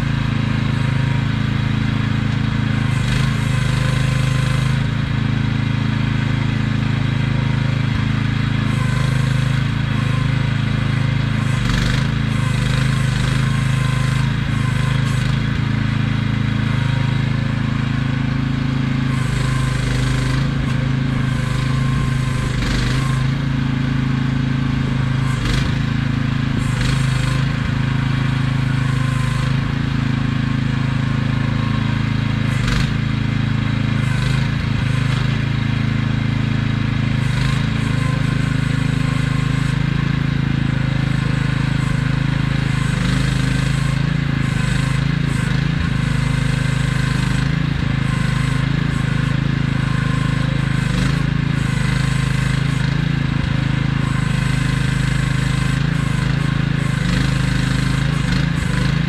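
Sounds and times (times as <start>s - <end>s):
mini excavator engine droning: 0.0s - 59.0s
bursts of machine noise: 19.0s - 59.0s.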